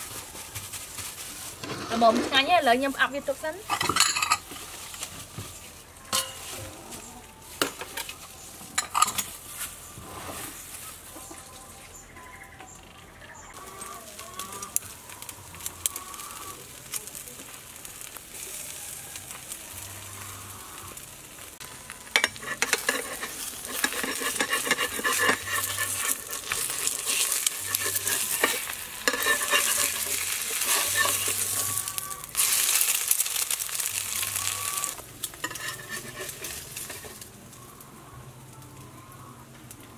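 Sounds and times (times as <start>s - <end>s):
bowls and utensils clinking: 3.7s - 4.6s, 7.6s - 9.4s, 22.1s - 32.5s
food sizzling loudly: 13.6s - 37.3s.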